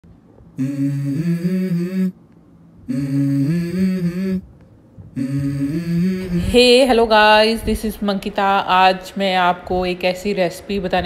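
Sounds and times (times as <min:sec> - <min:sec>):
low voice intoning: 0:00.6 - 0:02.1, 0:02.9 - 0:04.4, 0:05.2 - 0:07.7.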